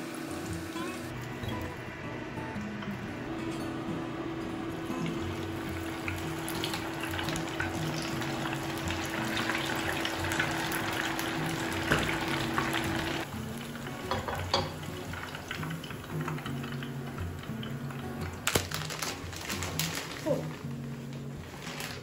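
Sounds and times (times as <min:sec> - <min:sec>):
fritters sizzling in hot oil: 0:05.5 - 0:18.0.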